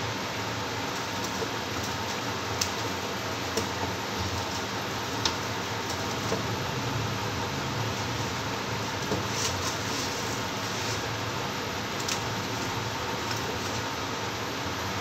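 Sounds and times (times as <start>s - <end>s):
steady background hiss: 0.0s - 15.0s.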